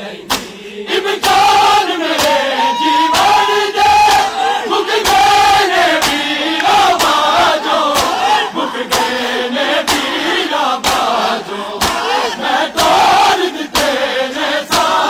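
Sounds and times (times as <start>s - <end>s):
men chanting a lament: 0.0s - 15.0s
hands slapping chests: 0.2s - 2.4s, 3.1s - 14.1s, 14.7s - 15.0s.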